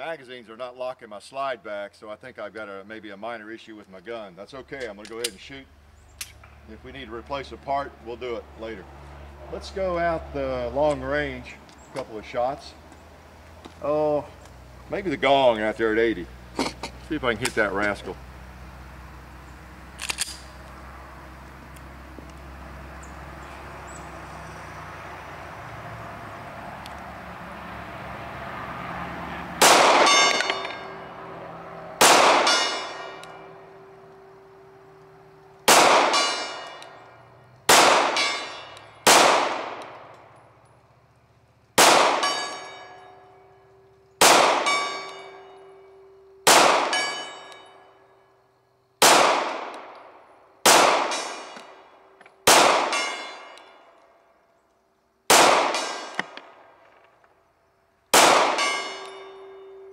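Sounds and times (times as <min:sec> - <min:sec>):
pistol shots: 0:29.6 - 0:31.0, 0:32.0 - 0:33.4, 0:35.7 - 0:37.0, 0:37.7 - 0:40.1, 0:41.8 - 0:43.0, 0:44.2 - 0:45.5, 0:46.4 - 0:47.6, 0:49.0 - 0:50.0, 0:50.6 - 0:51.8, 0:52.4 - 0:53.7, 0:55.3 - 0:56.6, 0:58.1 - 0:59.5.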